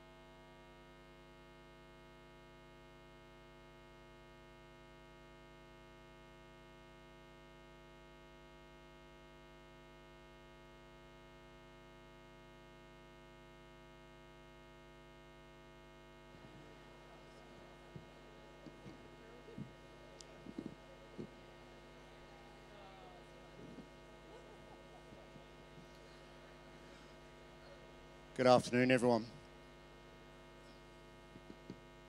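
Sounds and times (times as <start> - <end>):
electrical mains hum: 0.0 - 32.0.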